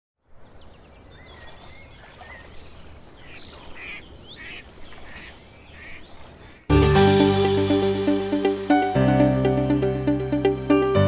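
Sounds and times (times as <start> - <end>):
bird chirps: 0.4 - 6.7.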